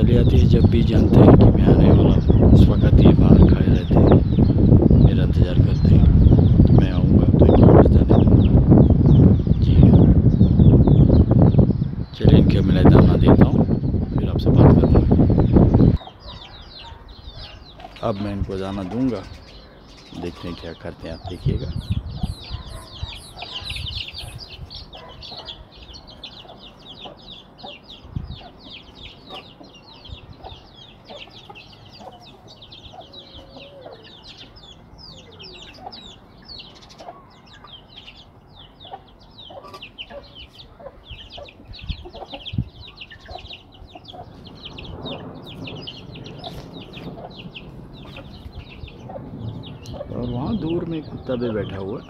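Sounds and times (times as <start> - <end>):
chicks peeping: 0.0 - 52.0
hen clucking: 20.2 - 45.2, 46.3 - 51.9.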